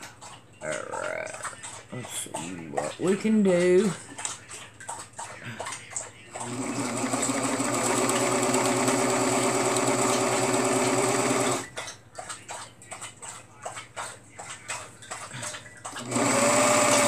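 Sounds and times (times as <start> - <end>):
overlock sewing machine stitching: 6.4 - 11.7, 15.9 - 17.0.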